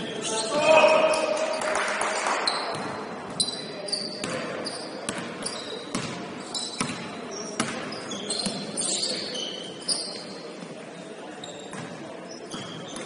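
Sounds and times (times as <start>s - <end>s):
voices in a gym: 0.0s - 13.0s
sneaker squeaks: 0.1s - 1.6s, 2.5s - 13.0s
basketball bouncing on hardwood: 5.9s - 6.2s.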